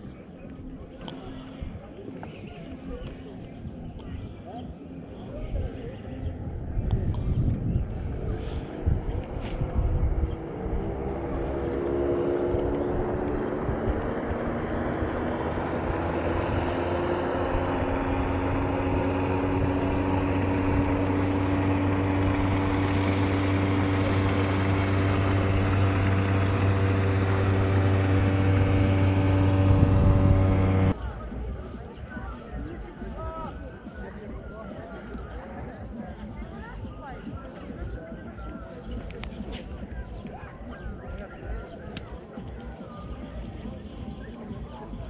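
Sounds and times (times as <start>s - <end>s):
engine running: 0.0s - 45.0s.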